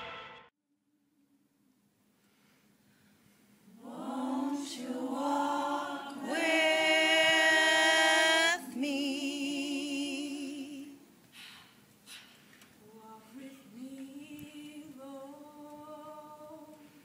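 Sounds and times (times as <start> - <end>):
a cappella singing: 3.7 - 11.1, 12.8 - 17.0.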